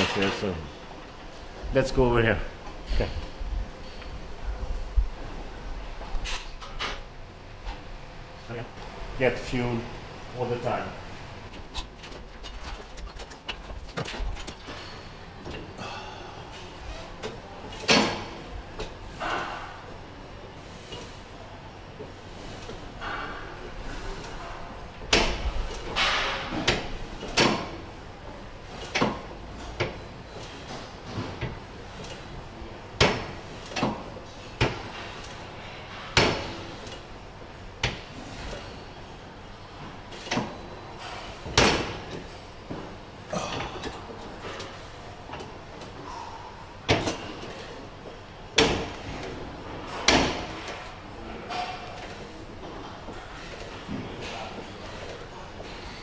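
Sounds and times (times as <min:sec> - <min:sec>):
weight machine plates clanking: 0:11.4 - 0:15.7.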